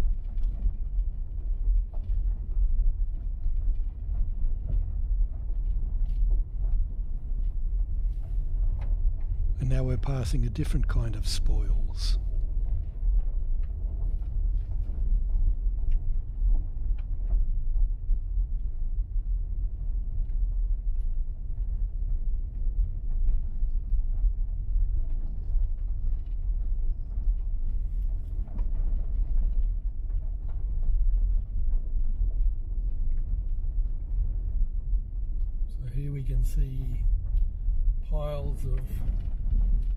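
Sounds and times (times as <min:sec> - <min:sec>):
faint ticks and rattles: 0:00.0 - 0:39.9.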